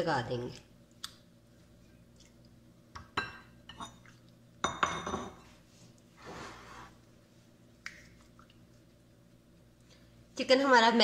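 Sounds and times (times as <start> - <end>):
ceramic plates clinking: 4.7 - 5.4.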